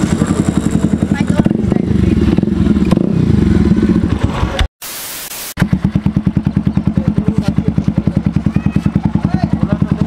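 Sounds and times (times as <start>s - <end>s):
motorcycle engine running: 0.0s - 4.7s, 5.6s - 10.0s
short hiss: 4.8s - 5.6s.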